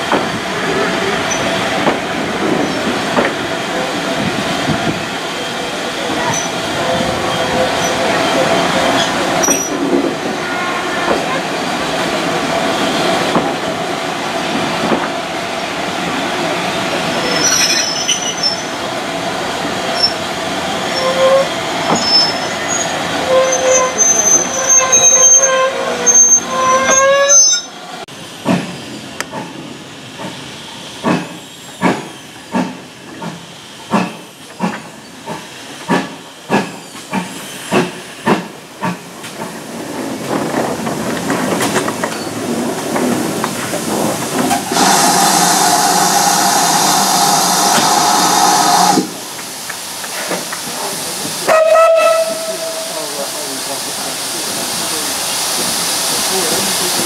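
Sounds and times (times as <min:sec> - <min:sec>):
train wheels squealing: 0:06.2 - 0:09.8, 0:17.2 - 0:18.8, 0:20.9 - 0:27.8.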